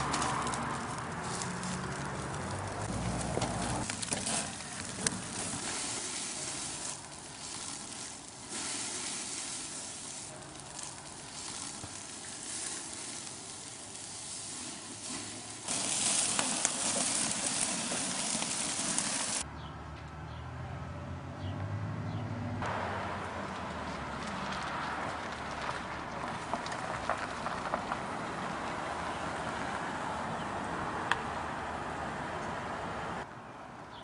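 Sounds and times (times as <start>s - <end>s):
patties sizzling on grill: 0.0s - 19.4s.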